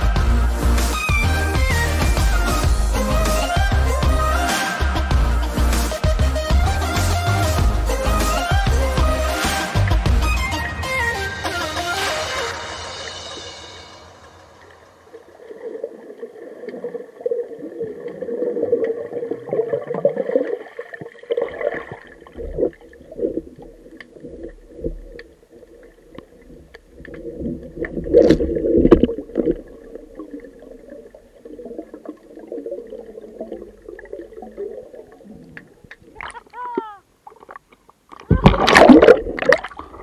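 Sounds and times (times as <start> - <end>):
muffled underwater rushing water: 12.5 - 40.0.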